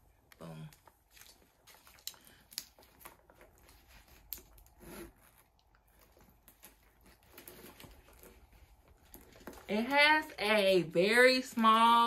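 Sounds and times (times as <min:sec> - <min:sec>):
soft rustling: 0:00.7 - 0:10.3.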